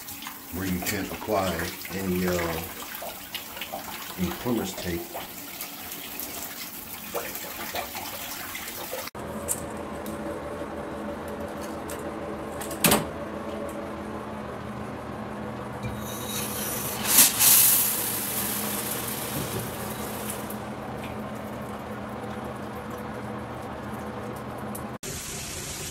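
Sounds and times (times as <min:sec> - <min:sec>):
shower water running: 0:00.0 - 0:09.2, 0:16.0 - 0:25.9.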